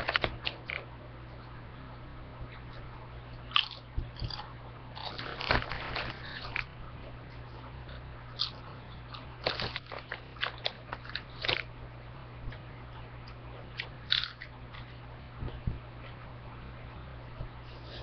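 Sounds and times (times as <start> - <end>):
steady low hum: 0.0 - 18.0
person chewing crunchy chips: 3.5 - 6.7, 7.9 - 11.7, 13.8 - 14.5.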